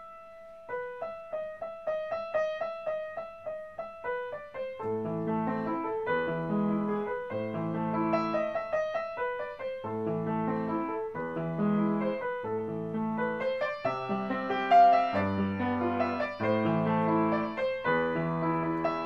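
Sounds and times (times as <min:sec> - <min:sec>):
gentle piano music: 0:00.0 - 0:19.0.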